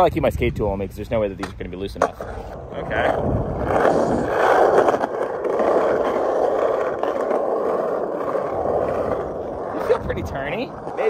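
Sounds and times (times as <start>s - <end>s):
skateboard wheels on asphalt: 0.0s - 11.0s.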